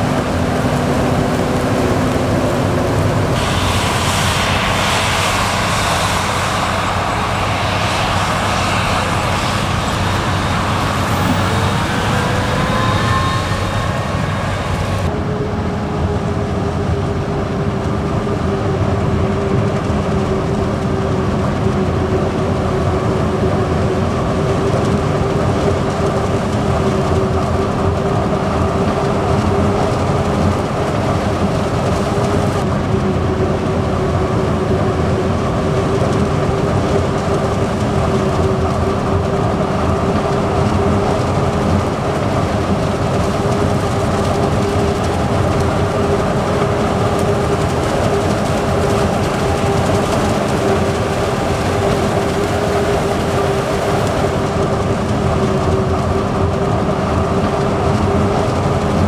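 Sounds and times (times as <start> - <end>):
heavy machine engine rumble: 0.0 - 59.0
hiss of chopped crop: 3.4 - 11.4.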